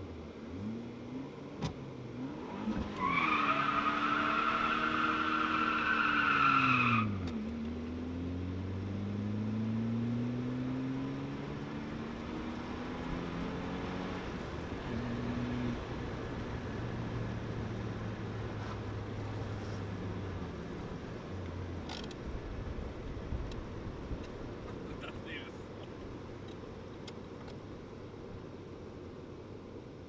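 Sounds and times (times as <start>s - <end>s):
car engine revving: 7.7s - 19.7s.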